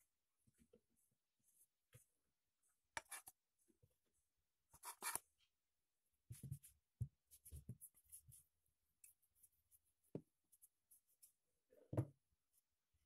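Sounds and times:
soft knocks on wooden board: 11.9 - 12.1.

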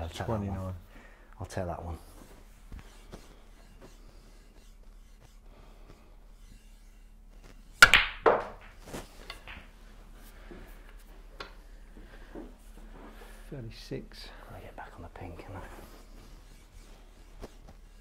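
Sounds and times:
cue tip striking ball: 7.8 - 9.8
snooker balls clacking: 7.8 - 9.8.

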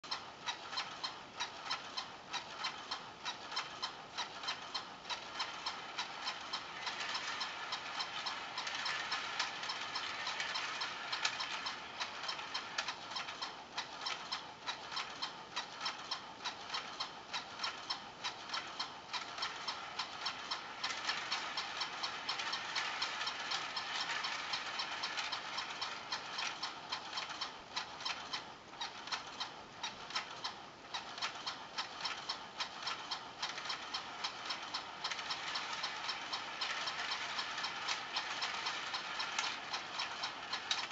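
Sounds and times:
small toy motor whirring: 3.5 - 13.4, 18.5 - 27.4, 32.7 - 40.9.

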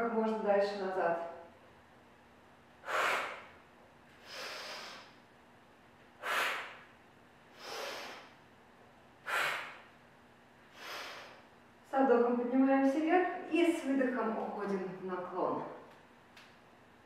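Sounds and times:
woman exhaling forcefully: 2.8 - 3.6, 4.2 - 5.2, 6.2 - 6.9, 7.6 - 8.3, 9.2 - 9.9, 10.8 - 11.4
woman inhaling softly: 4.2 - 5.2, 7.6 - 8.4, 10.7 - 11.5.

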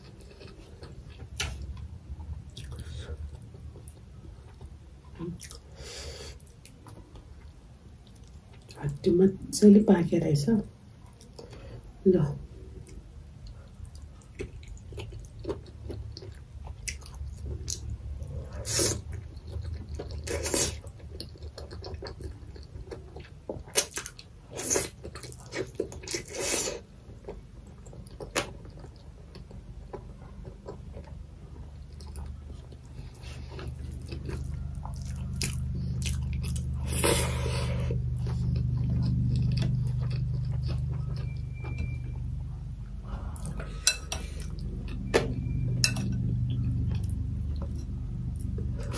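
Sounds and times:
close-miked chewing: 0.0 - 5.7, 12.8 - 45.1
low steady hum: 0.0 - 48.9.

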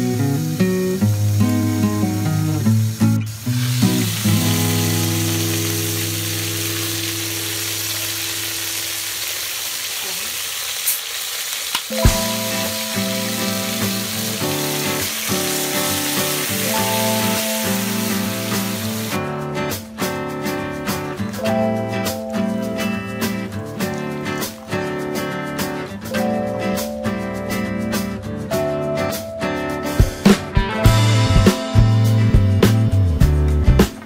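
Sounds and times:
chicken sizzling in a pot: 0.0 - 19.3
cola pouring: 3.4 - 11.0.

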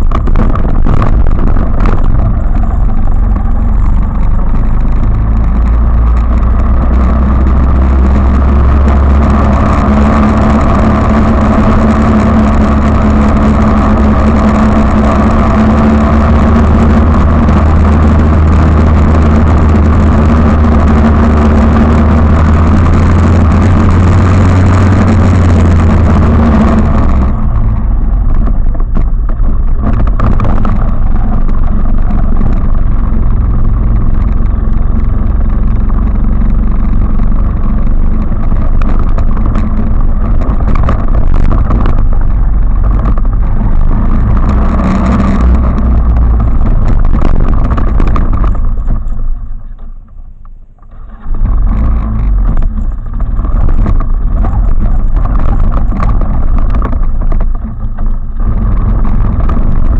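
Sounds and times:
quad bike engine: 0.0 - 59.9.

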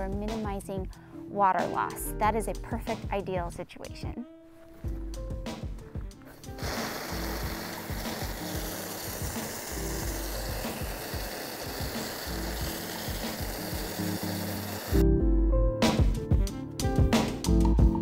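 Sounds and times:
quiet background music: 0.0 - 18.0
steady hiss: 6.3 - 15.0.

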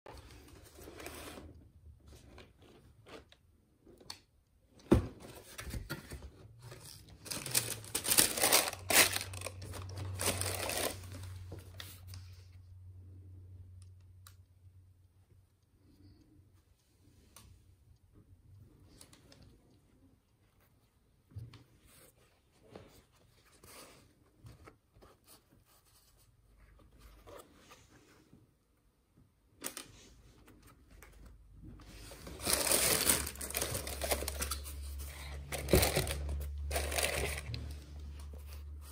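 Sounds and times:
tissue paper crinkling: 6.8 - 12.0, 32.0 - 37.8.

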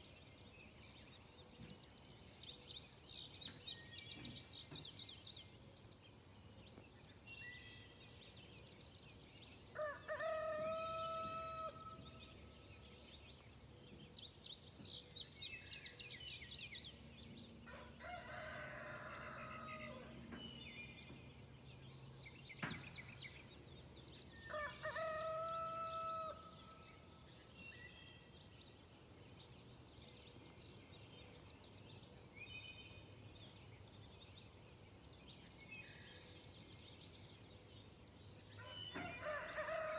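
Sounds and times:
rooster crowing: 9.8 - 11.9, 38.7 - 39.9.

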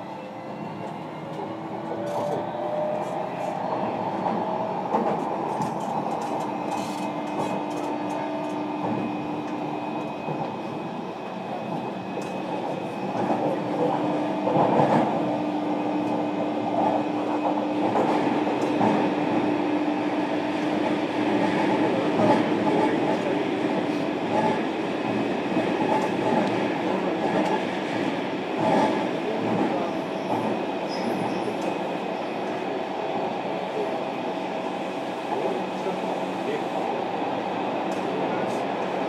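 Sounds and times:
train wheels clattering on rails: 4.1 - 10.8, 11.6 - 15.3, 16.0 - 19.2, 20.6 - 32.6.

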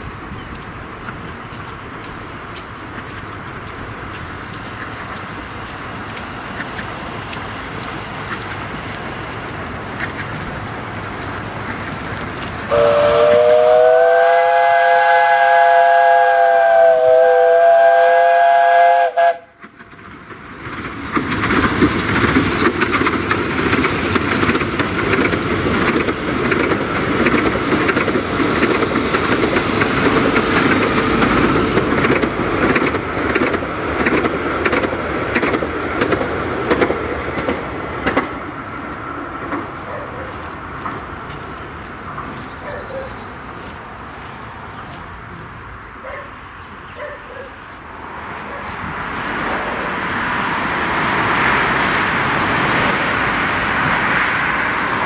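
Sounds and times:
steam engine exhaust beats: 0.0 - 19.8
train coaches running: 0.0 - 55.0
steam locomotive whistle: 12.7 - 19.6.

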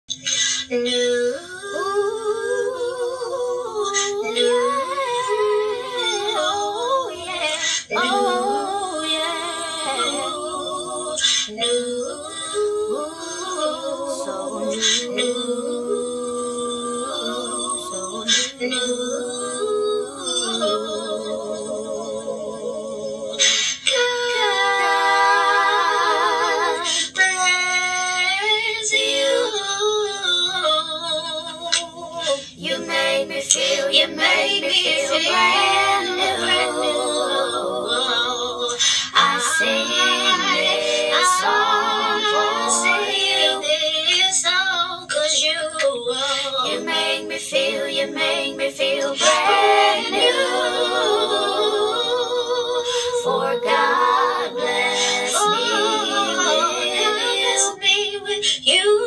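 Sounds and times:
woman singing layered harmony: 0.4 - 59.0
hissing breath: 23.4 - 23.9, 38.8 - 39.2
woman breathing in: 38.8 - 39.2.

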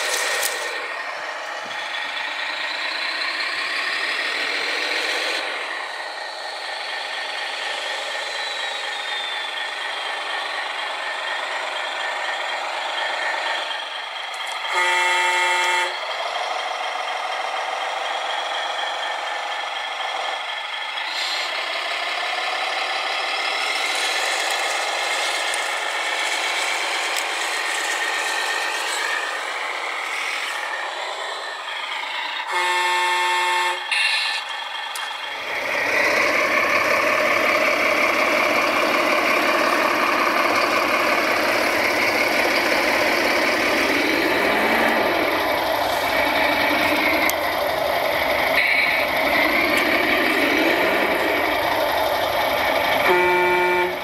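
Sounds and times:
toy truck horn: 0.0 - 0.8, 14.4 - 16.1, 32.3 - 34.5, 48.6 - 49.0, 53.0 - 54.0
deep engine-like running sound: 0.0 - 54.0
model truck motor whine: 0.0 - 54.0.

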